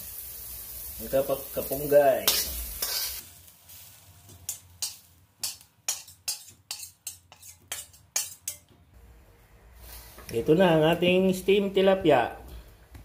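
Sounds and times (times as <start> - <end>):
spatula scraping and tapping wok: 2.2 - 3.3, 4.2 - 8.8.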